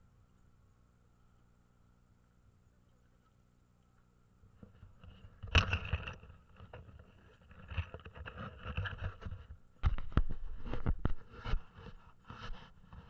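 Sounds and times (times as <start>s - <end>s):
camera handling rubbing and rustling: 4.6s - 13.0s.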